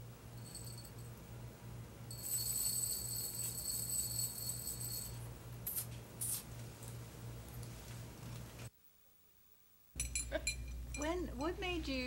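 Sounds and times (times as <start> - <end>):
small bell ringing: 0.4 - 1.2, 2.1 - 5.3
bell rattling shakes: 2.1 - 5.3.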